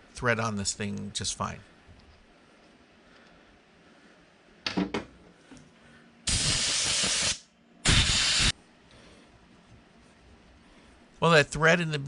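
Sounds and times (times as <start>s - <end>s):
compressed-air blow gun hissing: 6.3s - 8.6s.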